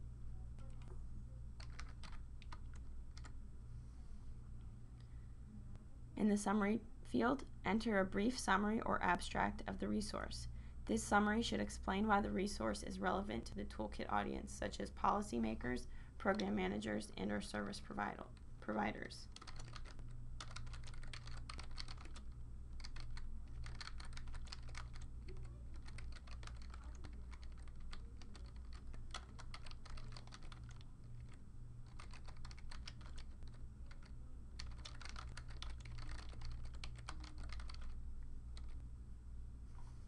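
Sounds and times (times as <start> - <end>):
steady low hum: 0.0 - 40.0
computer keyboard typing: 1.6 - 3.4, 19.3 - 38.8.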